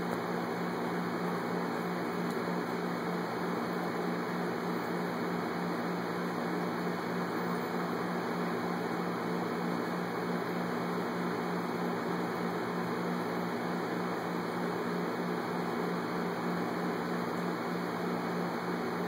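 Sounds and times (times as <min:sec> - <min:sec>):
mechanical hum: 0:00.0 - 0:19.0.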